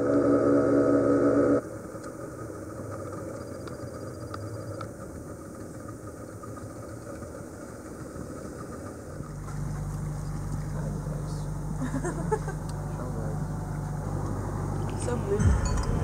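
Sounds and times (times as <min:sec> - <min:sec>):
boat engine idling: 0:00.0 - 0:16.0
background music: 0:14.4 - 0:16.0.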